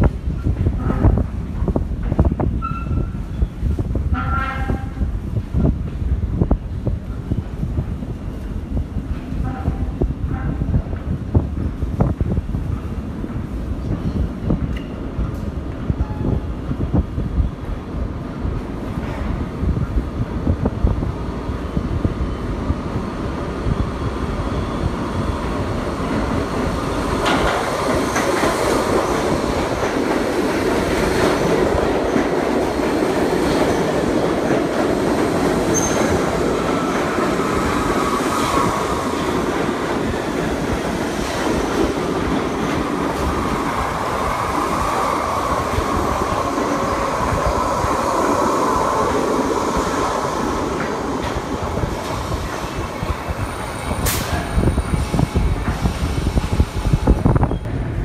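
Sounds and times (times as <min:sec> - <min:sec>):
subway train wheels rumbling on rails: 0:00.0 - 0:58.0
clacks over rail joints: 0:27.2 - 0:36.1.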